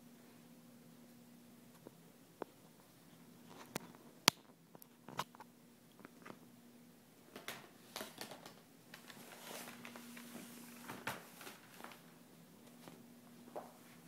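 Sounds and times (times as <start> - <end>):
low steady hum: 0.0 - 14.0
soft hiss: 0.0 - 14.0.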